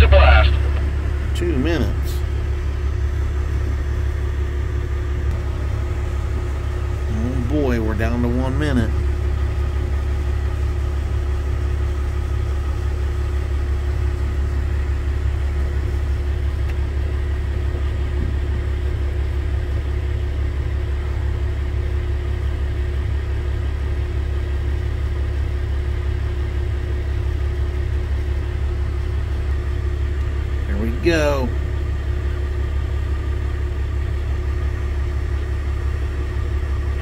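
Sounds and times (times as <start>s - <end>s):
faint steady hum: 0.0s - 37.0s
vehicle engine idling: 0.0s - 37.0s.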